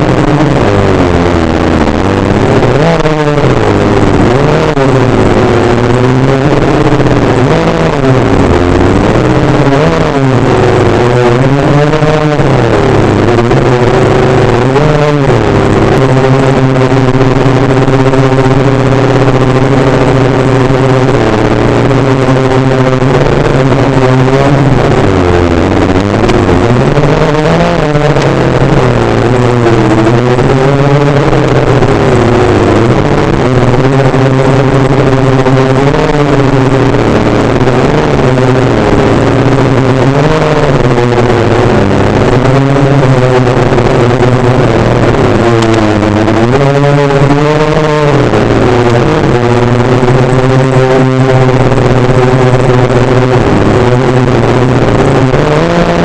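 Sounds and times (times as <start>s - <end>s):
quadcopter propellers droning: 0.0s - 56.0s.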